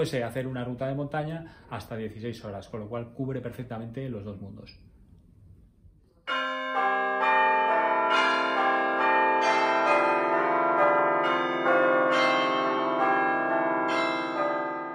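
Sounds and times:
bell-like chimes music: 6.3 - 14.9.

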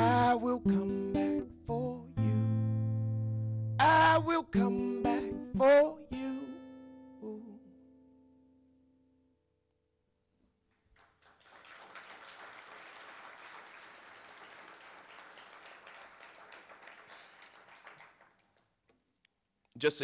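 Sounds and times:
audience applauding: 10.7 - 18.8.

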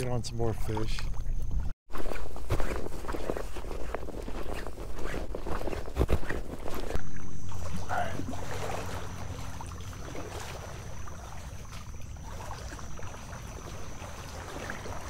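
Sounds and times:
water sloshing around legs: 0.4 - 15.0
low hum: 6.8 - 14.4.

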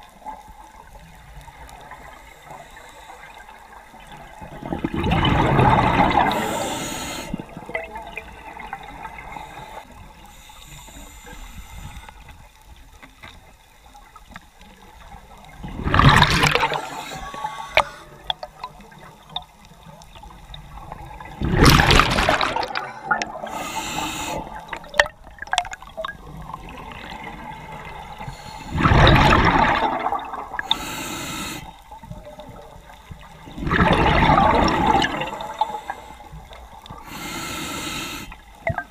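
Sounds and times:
exhaled bubbles underwater: 3.4 - 10.9, 14.9 - 37.2
regulator hissing: 6.3 - 7.4, 23.5 - 24.6, 30.7 - 31.7, 37.0 - 38.4.

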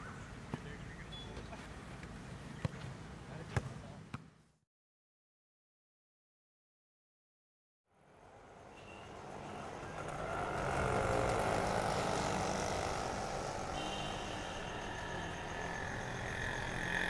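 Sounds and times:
passing vehicles: 7.9 - 17.0.

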